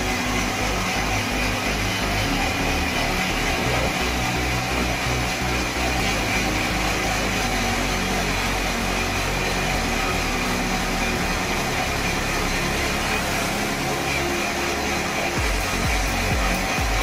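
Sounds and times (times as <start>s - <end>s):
band saw machinery drone: 0.0s - 17.0s
high whine: 0.0s - 17.0s.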